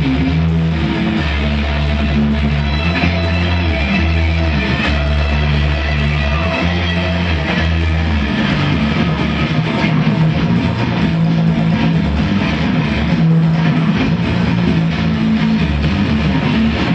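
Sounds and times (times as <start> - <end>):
held low bass notes: 0.0 - 16.9
rock band playing: 0.0 - 16.9.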